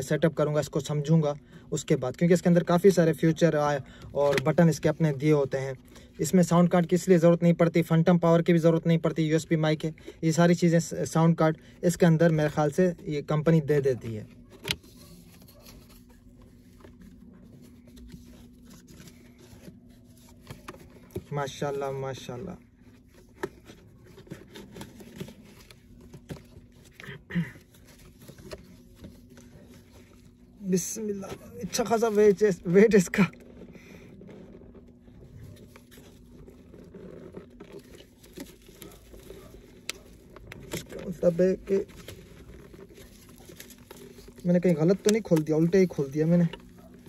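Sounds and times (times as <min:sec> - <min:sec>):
steady low hum: 0:00.0 - 0:47.0
packaging rustling and scratching: 0:11.9 - 0:47.0.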